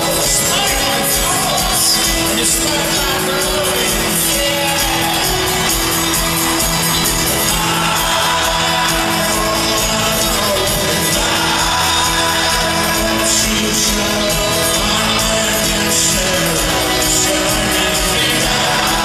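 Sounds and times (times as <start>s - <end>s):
banjo: 0.0s - 19.0s
crowd shouting and singing along: 0.0s - 19.0s
live folk-rock band playing: 0.0s - 19.0s.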